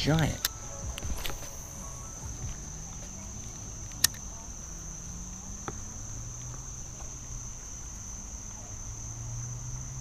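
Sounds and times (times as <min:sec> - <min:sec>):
insects trilling: 0:00.0 - 0:10.0
sharp click: 0:03.9 - 0:04.2.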